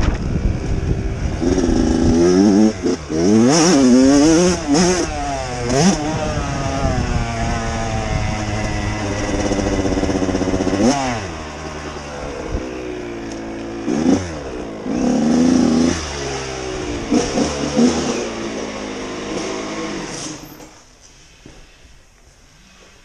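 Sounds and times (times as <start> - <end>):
dirt bike engine revving: 0.0 - 20.7.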